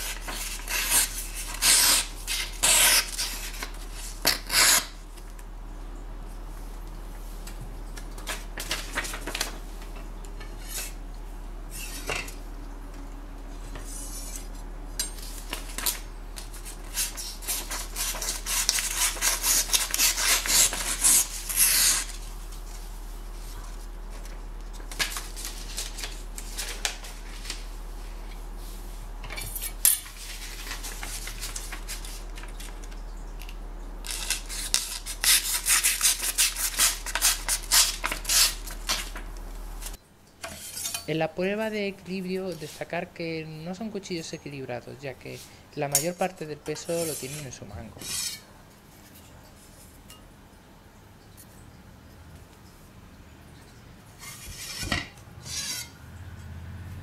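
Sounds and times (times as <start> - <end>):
knife slicing paper crackling: 0.0 - 5.0, 15.2 - 22.8, 23.4 - 27.7, 29.6 - 32.9, 34.0 - 39.2, 46.9 - 48.4
paper rustling: 15.2 - 28.3, 30.0 - 33.0.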